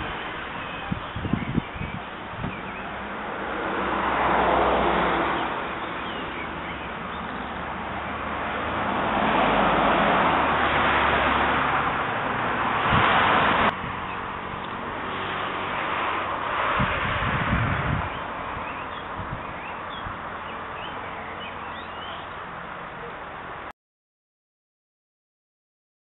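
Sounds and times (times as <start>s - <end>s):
outdoor rushing noise: 0.0s - 20.8s.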